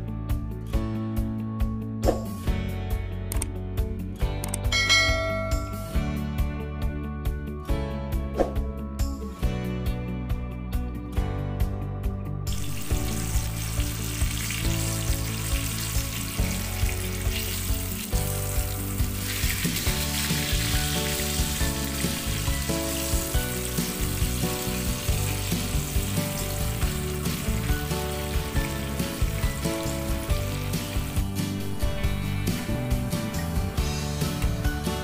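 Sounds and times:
background music with steady beat: 0.0 - 35.0
fish sizzling in bubbling oil: 12.5 - 34.6.

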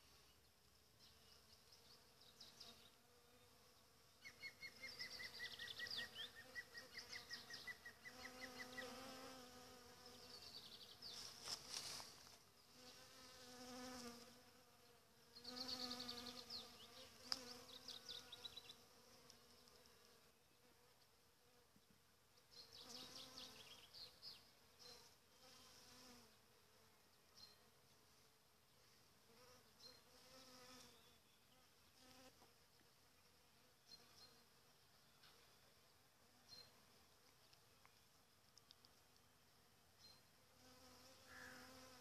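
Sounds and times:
bees buzzing: 6.2 - 12.1, 12.7 - 14.8.

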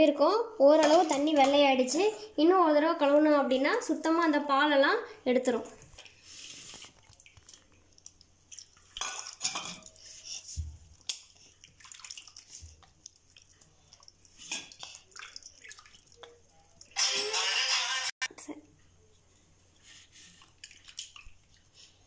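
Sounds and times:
water sloshing and splashing: 5.8 - 17.0, 20.3 - 22.0.

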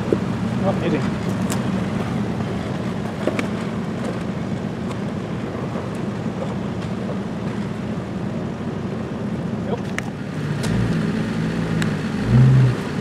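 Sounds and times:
vehicle engine running at low revs: 0.0 - 13.0.

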